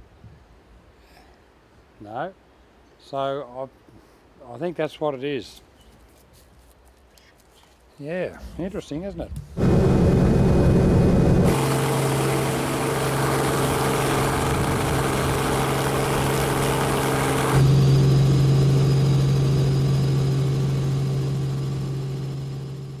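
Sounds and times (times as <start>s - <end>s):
helicopter engine and rotor drone: 9.6s - 23.0s.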